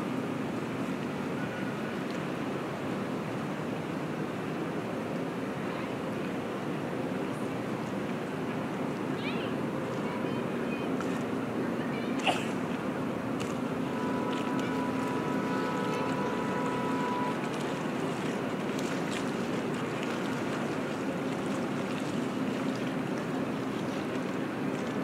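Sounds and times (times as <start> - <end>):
low motor hum: 8.2 - 25.0
thin whistle-like tone: 13.9 - 17.4.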